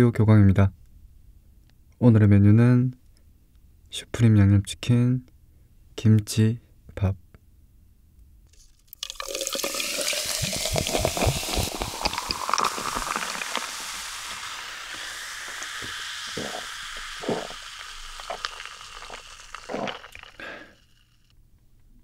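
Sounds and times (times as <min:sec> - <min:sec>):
cola pouring over ice: 0:08.8 - 0:21.3
cola fizzing: 0:08.9 - 0:21.3
person gulping: 0:09.0 - 0:21.1
ice cubes clinking on glass: 0:09.0 - 0:21.2.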